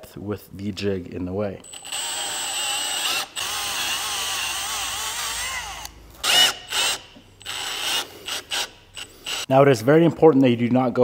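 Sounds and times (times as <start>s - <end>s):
drill trigger bursts: 1.6s - 9.5s
cordless drill whining: 1.7s - 9.5s.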